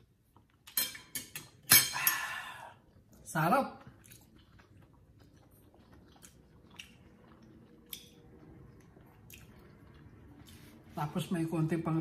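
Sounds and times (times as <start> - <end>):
faint chewing: 3.8 - 11.0.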